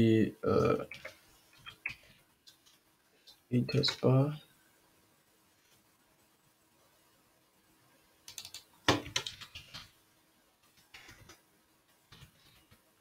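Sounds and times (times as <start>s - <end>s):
computer keyboard typing: 8.3s - 9.9s, 10.8s - 11.4s.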